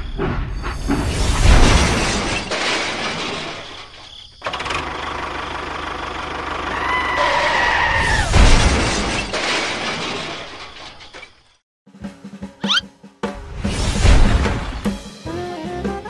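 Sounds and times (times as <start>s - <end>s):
loud crash with low thump: 1.0s - 3.8s, 8.2s - 11.2s, 13.5s - 14.8s
high squeal: 12.6s - 12.8s.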